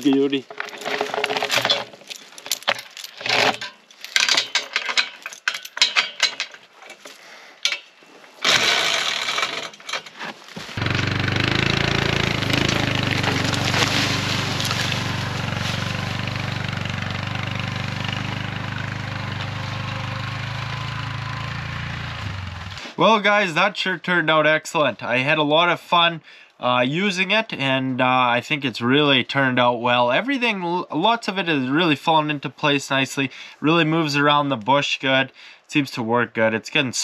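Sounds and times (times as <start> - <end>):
metal chain clinking and rattling: 0.0 - 7.9
quad bike engine running: 10.8 - 22.8.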